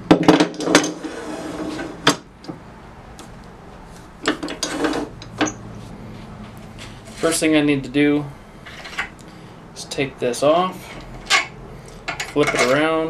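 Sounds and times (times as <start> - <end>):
metal lathe parts knocking: 12.1 - 13.0.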